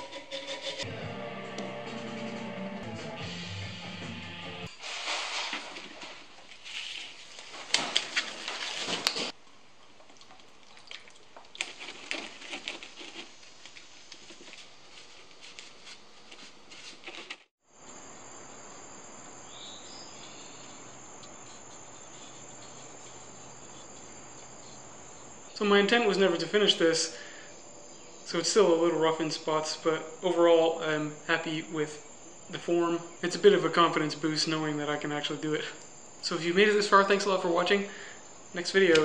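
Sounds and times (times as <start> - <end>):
crickets chirring: 17.6 - 39.0.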